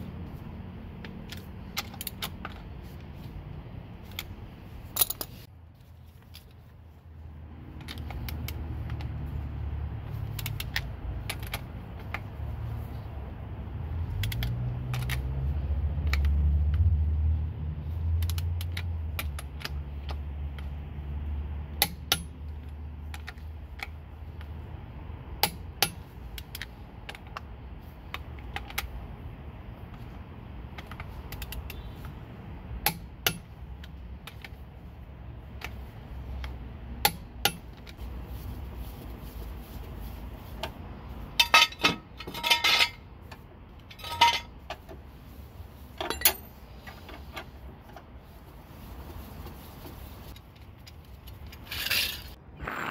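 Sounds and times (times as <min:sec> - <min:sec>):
lug nuts clicking and clinking: 0:04.0 - 0:05.5, 0:40.6 - 0:45.0, 0:45.9 - 0:48.1
metal jack stand clanking: 0:41.3 - 0:43.1, 0:43.8 - 0:44.8, 0:46.0 - 0:47.3.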